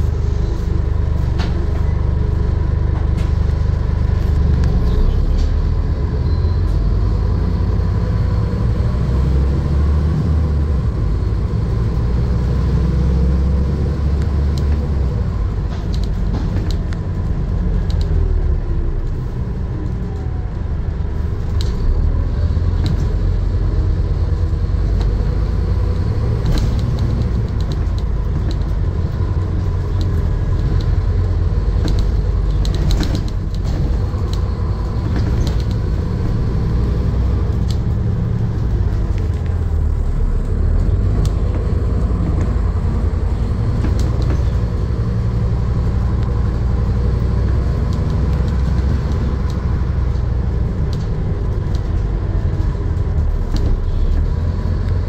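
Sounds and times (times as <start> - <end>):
bus diesel engine rumble: 0.0 - 55.0
bodywork rattles and clicks: 14.1 - 18.3, 22.7 - 55.0.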